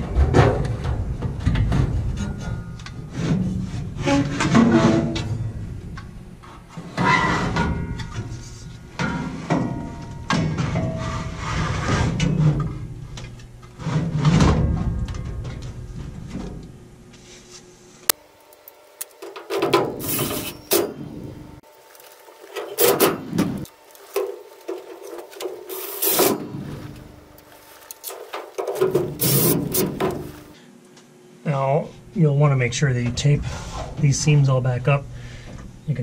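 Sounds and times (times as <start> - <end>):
rubbing and scraping on sheet metal: 6.7 - 7.7, 10.6 - 12.7, 19.4 - 21.0, 22.7 - 26.9, 27.6 - 30.5.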